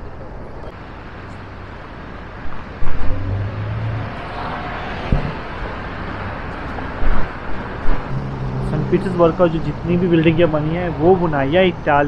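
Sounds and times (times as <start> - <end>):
car engines and tyres: 0.0 - 12.0
loud low thumps: 4.9 - 5.8.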